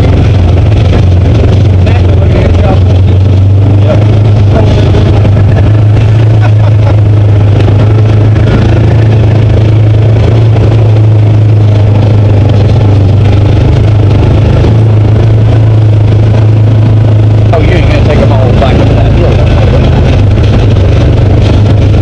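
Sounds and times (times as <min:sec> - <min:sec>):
vehicle engine droning: 0:00.0 - 0:22.0.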